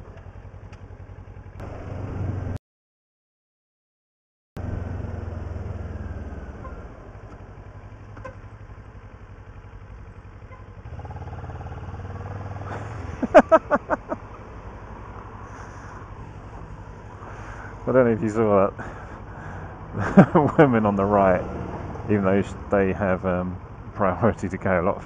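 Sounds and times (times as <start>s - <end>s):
motorcycle engine running: 0.0s - 2.6s, 4.6s - 25.0s.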